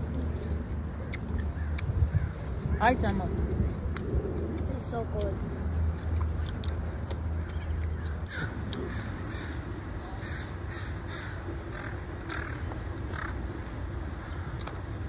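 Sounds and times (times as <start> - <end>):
low steady hum: 0.0 - 15.0
crows cawing: 8.3 - 14.6.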